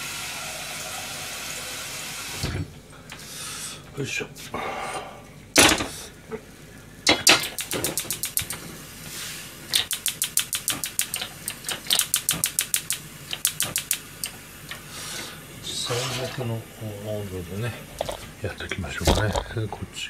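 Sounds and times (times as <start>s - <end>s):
push buttons clicking: 7.1s - 8.6s, 9.7s - 14.4s.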